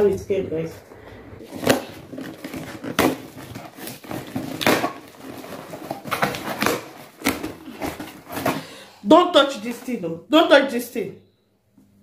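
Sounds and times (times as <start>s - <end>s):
cardboard ripping: 1.4s - 8.7s
cardboard rustling and scraping: 1.4s - 8.8s.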